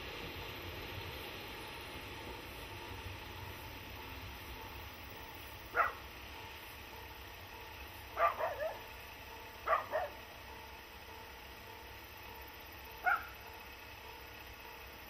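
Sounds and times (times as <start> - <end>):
dog barking: 5.7 - 6.0, 8.2 - 8.9, 9.6 - 10.2, 13.0 - 13.4.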